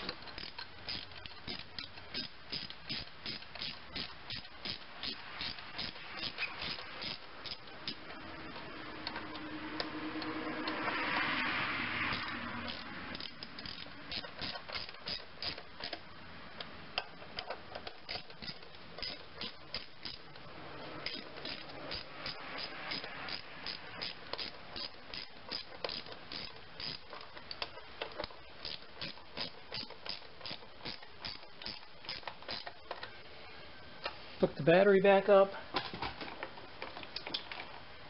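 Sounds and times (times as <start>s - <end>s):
ratchet wrench clicking: 0.0s - 8.2s, 12.0s - 16.0s, 17.0s - 20.4s, 21.0s - 32.9s.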